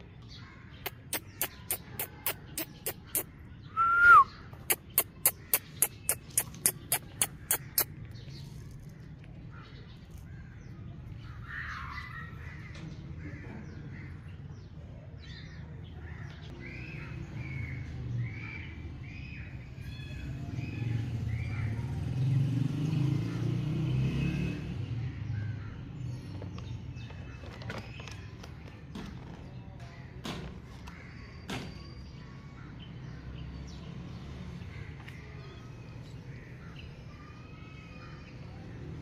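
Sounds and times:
bird calling: 0:00.4 - 0:14.2.

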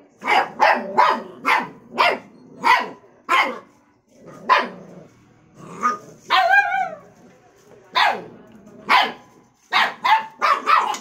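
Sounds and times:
puppies barking: 0:00.2 - 0:03.6, 0:04.5 - 0:04.8, 0:08.9 - 0:11.0.

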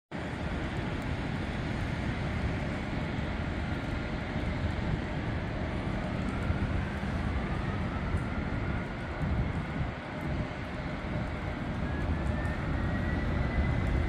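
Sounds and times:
faint engine whine: 0:00.1 - 0:14.0
distant jet engines rumbling: 0:00.2 - 0:14.0.

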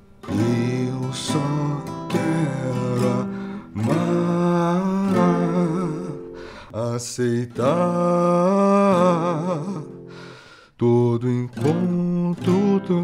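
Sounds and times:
acoustic guitar: 0:00.0 - 0:13.0
man singing a slow ballad: 0:00.2 - 0:13.0.

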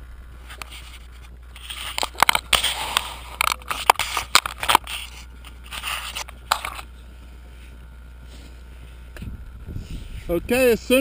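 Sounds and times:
camera handling clicks and scrapes: 0:00.4 - 0:06.9.

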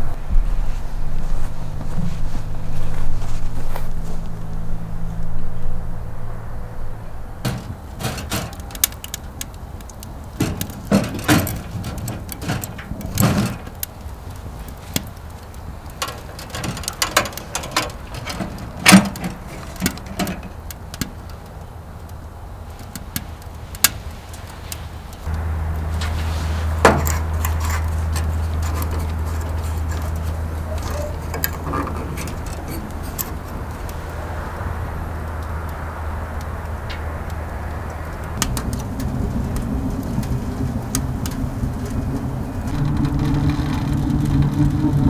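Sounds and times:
steady low hum: 0:00.0 - 0:08.6, 0:25.0 - 0:45.0
firewood knocking on metal stove: 0:07.4 - 0:08.8.

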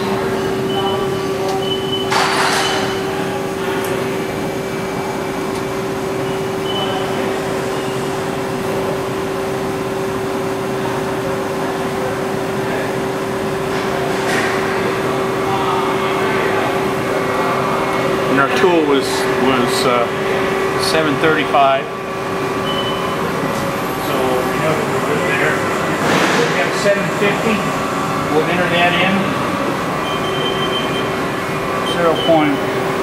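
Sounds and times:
lathe humming: 0:26.6 - 0:33.0.

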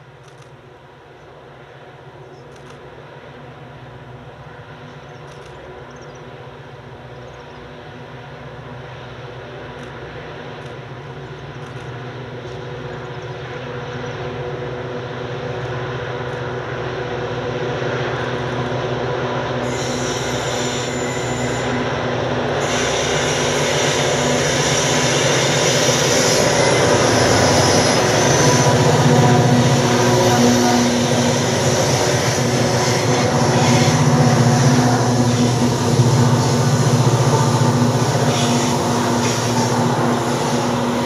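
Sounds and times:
locomotive engines droning: 0:00.0 - 0:41.0
wheel squeal: 0:19.6 - 0:21.8.

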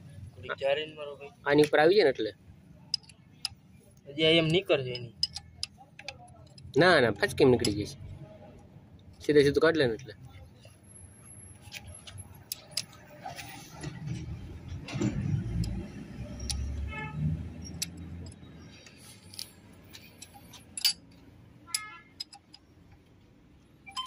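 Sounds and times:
spanners clinking on metal: 0:04.4 - 0:08.0, 0:17.5 - 0:22.7.

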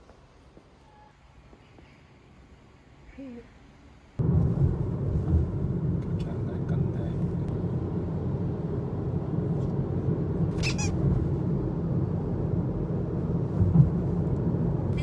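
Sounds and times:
car road and engine rumble: 0:02.2 - 0:15.0
high-pitched squeak: 0:10.6 - 0:11.0.

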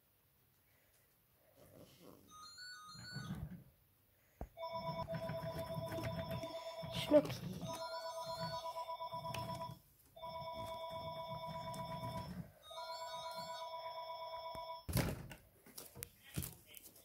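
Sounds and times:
telephone ringing: 0:02.3 - 0:03.7, 0:04.6 - 0:14.9.

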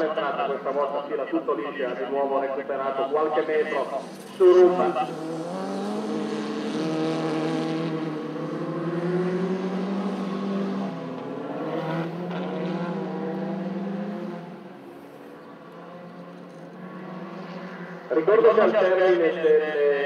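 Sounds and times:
race car engine revving: 0:03.3 - 0:18.8.

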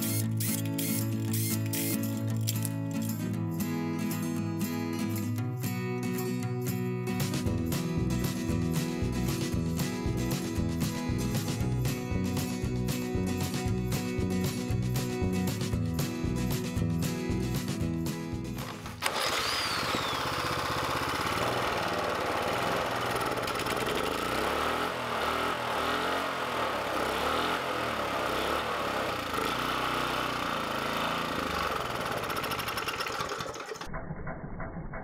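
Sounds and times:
music: 0:00.0 - 0:19.0
small gasoline engine running: 0:18.6 - 0:35.0.

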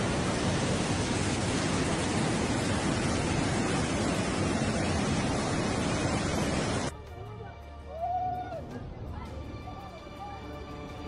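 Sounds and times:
torrent of water rushing: 0:00.0 - 0:06.9.

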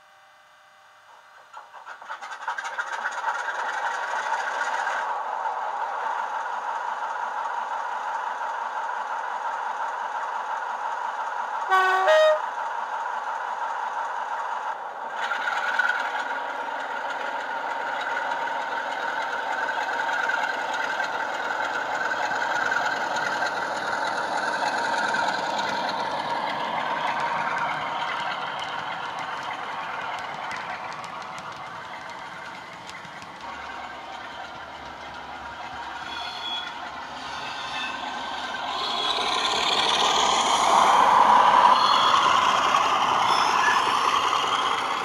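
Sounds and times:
two-tone horn blast: 0:11.7 - 0:12.5.

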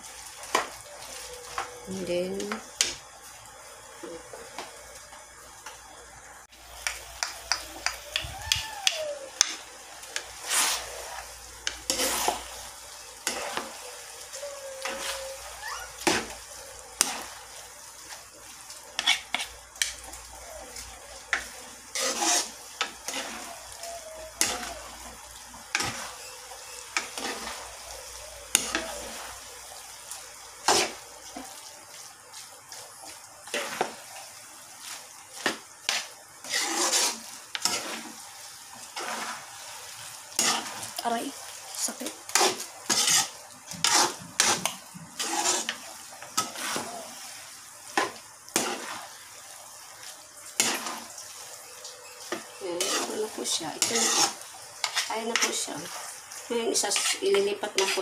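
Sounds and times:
sauce sizzling: 0:00.0 - 0:58.0
utensils clinking and scraping pan: 0:06.7 - 0:17.4, 0:18.0 - 0:29.5, 0:30.6 - 0:31.5, 0:34.9 - 0:38.2, 0:40.3 - 0:47.2, 0:47.9 - 0:49.1, 0:50.5 - 0:58.0.

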